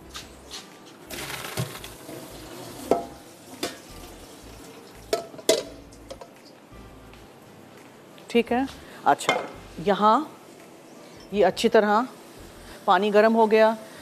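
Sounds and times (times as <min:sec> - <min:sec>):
cookware clanking: 0:01.1 - 0:03.9, 0:05.1 - 0:06.3, 0:09.2 - 0:09.6
water rushing through strainer: 0:01.1 - 0:05.0.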